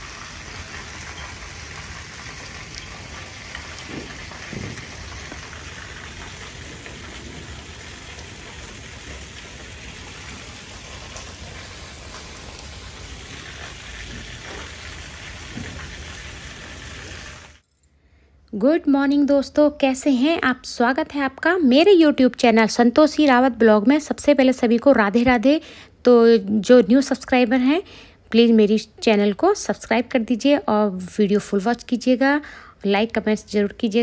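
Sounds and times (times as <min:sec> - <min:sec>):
water splattering on ground: 0:00.0 - 0:17.4.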